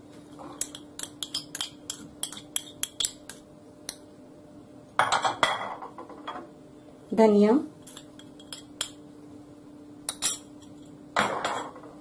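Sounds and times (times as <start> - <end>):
kitchenware clattering: 5.0 - 6.5, 10.1 - 12.0
metal spoon clinking on glass bowl: 7.9 - 9.0.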